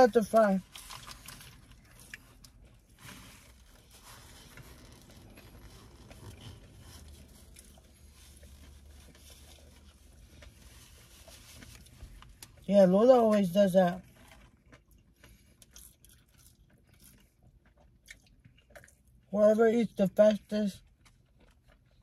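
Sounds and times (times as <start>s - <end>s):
low steady hum: 0.0s - 22.0s
people chewing: 14.0s - 19.2s.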